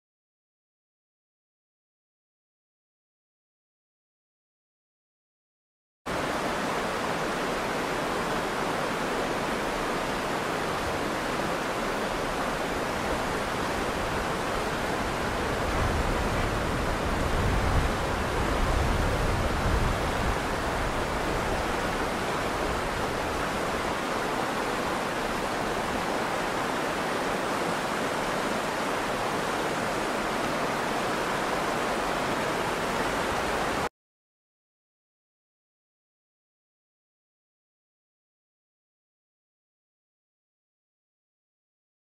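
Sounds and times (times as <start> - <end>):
stream rushing over stones: 6.1 - 33.9.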